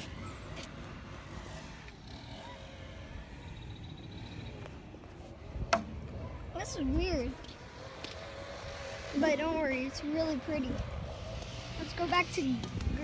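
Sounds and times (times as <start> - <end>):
steady low rumble: 2.9 - 13.0.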